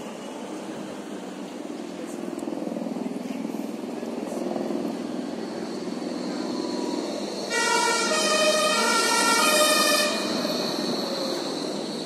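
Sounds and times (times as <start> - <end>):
street traffic: 0.0 - 12.0
two-tone emergency siren: 7.5 - 12.0.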